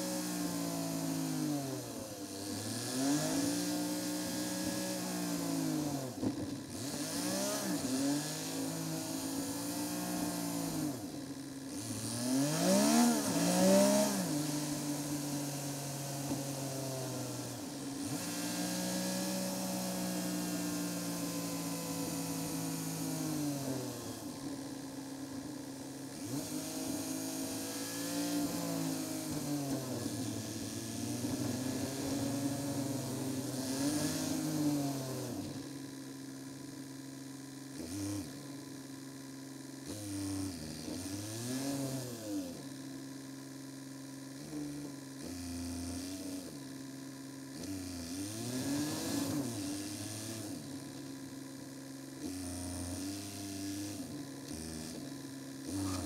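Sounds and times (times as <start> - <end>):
car engine accelerating: 0.0 - 35.7, 47.6 - 51.1, 52.2 - 56.0
road and tyre noise: 0.0 - 39.0.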